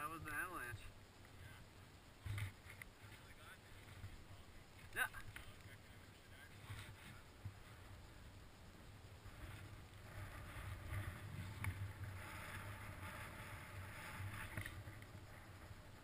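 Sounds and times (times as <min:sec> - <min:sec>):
wind buffeting microphone: 0:06.5 - 0:16.0.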